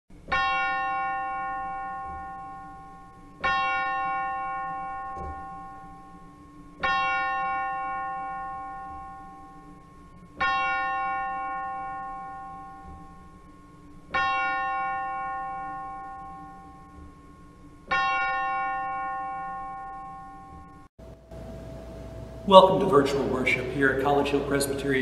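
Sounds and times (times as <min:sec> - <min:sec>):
church bell tolling: 0:00.3 - 0:25.0.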